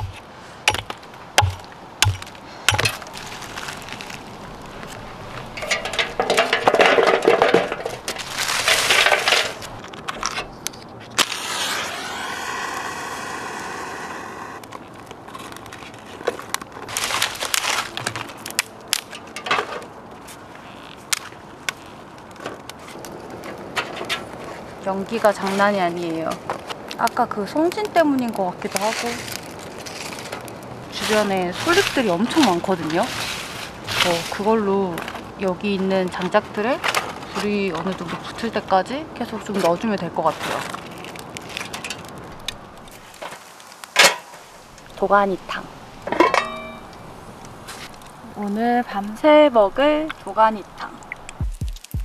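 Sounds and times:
hatchet chopping log: 0:00.0 - 0:03.1
rustling and handling noises: 0:00.0 - 0:11.2, 0:14.7 - 0:50.4.

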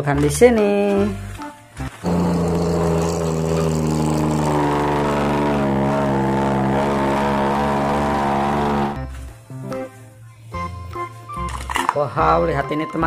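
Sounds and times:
heavy truck engine drone: 0:02.0 - 0:09.1.

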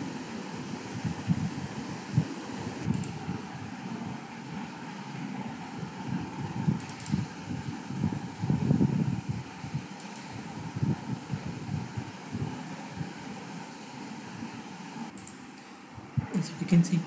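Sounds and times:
computer mouse clicking: 0:02.8 - 0:03.2, 0:06.8 - 0:07.2, 0:10.0 - 0:10.4, 0:15.1 - 0:15.7.

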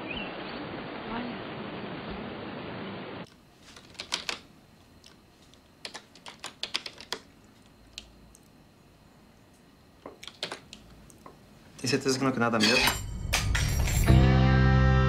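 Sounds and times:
keyboard key clicks: 0:10.1 - 0:10.8.

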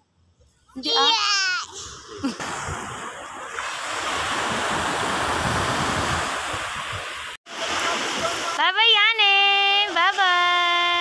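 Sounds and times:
sea surf washing ashore: 0:01.1 - 0:11.0
wind buffeting microphone: 0:04.3 - 0:07.4.

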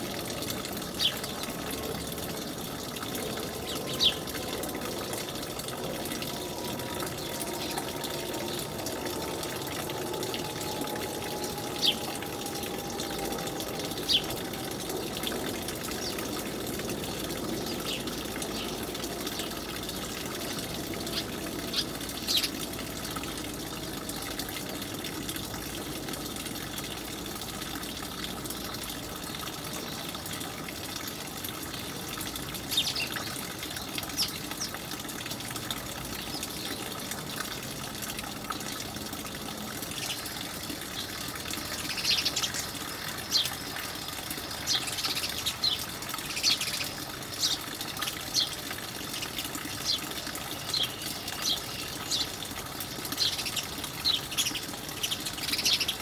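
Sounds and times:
sparrows chirping: 0:01.0 - 0:01.4, 0:03.6 - 0:04.4, 0:14.0 - 0:14.3, 0:21.1 - 0:22.6, 0:32.7 - 0:33.3, 0:41.0 - 0:48.6, 0:49.8 - 0:52.4, 0:53.1 - 0:56.0.

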